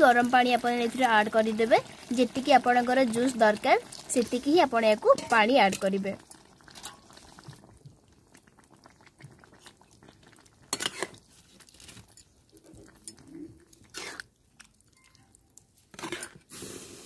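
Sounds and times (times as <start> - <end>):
spatula stirring thick curry: 9.2 - 16.5.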